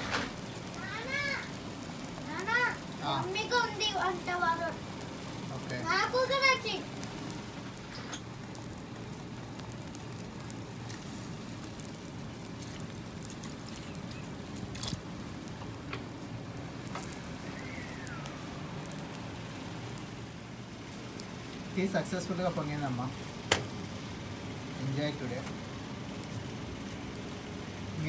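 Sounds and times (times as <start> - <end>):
tea simmering with crackling hiss: 0.0 - 28.0
faint whistle: 17.4 - 18.4.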